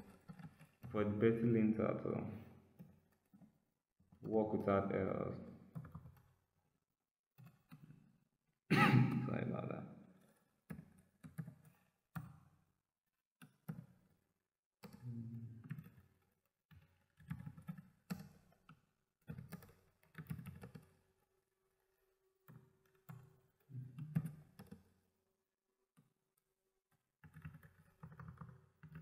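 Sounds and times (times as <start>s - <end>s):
computer keyboard typing: 17.1s - 18.2s, 19.3s - 20.9s, 27.2s - 29.0s.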